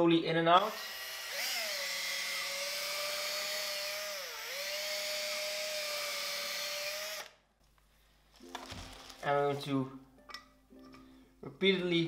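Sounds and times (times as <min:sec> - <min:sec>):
cordless drill motor whine: 0:00.7 - 0:07.3.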